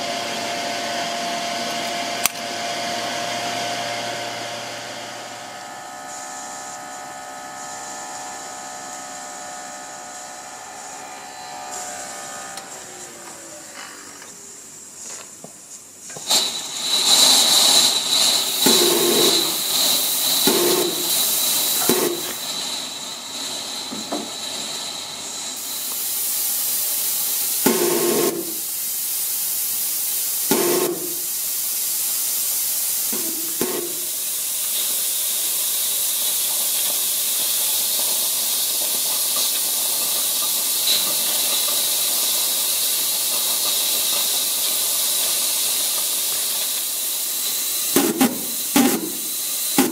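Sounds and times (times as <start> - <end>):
model steam locomotive hissing: 0.0 - 49.9
short puffs of steam: 10.7 - 49.9.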